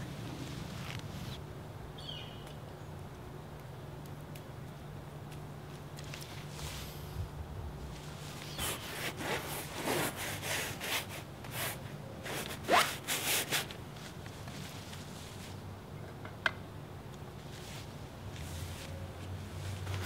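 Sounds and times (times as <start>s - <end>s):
brush scrubbing paint on canvas: 8.0s - 15.6s.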